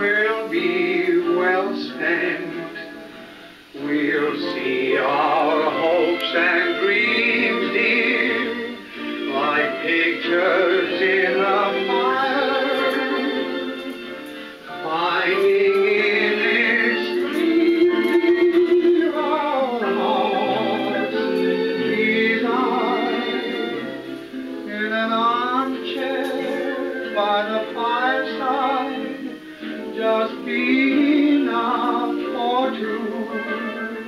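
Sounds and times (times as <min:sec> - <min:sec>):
vintage dance-band song: 0:00.0 - 0:34.0.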